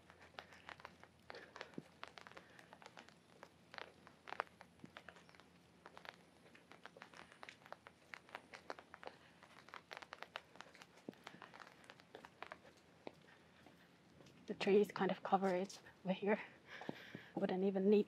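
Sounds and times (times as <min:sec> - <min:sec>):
raindrops tapping on umbrella: 0:00.0 - 0:13.0.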